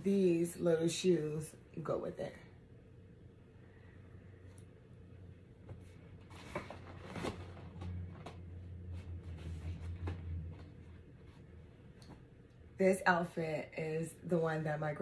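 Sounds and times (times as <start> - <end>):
low hum: 1.6 - 12.9
gift bag rustling and crinkling: 6.2 - 8.3.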